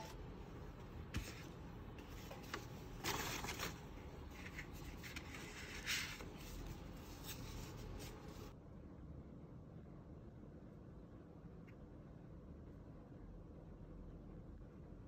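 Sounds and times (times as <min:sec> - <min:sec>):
paper and cardboard rustling: 0:00.8 - 0:08.5.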